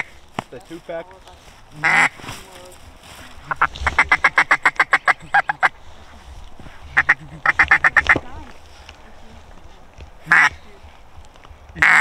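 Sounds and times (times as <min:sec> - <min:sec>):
duck quacking rapidly: 0:01.8 - 0:02.2, 0:03.5 - 0:05.7, 0:06.9 - 0:08.2, 0:10.2 - 0:10.6, 0:11.8 - 0:12.0.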